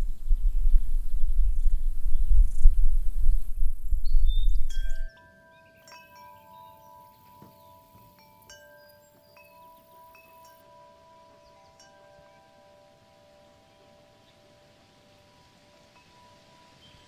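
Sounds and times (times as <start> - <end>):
loud low outdoor rumble: 0.0 - 5.0
faint high hiss: 0.0 - 17.0.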